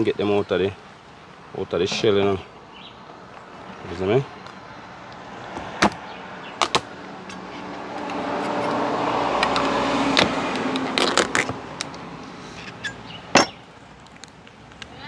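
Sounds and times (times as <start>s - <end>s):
vehicle passing by: 3.6s - 12.9s.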